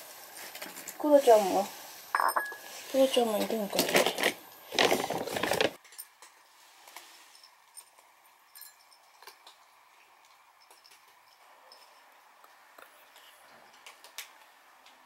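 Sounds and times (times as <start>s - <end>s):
loud rustling clatter: 3.6s - 5.8s
cats chewing food: 8.9s - 15.0s.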